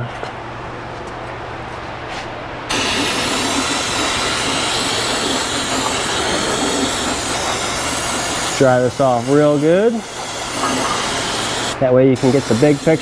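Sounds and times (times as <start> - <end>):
aerosol can spraying hiss: 2.7 - 13.0.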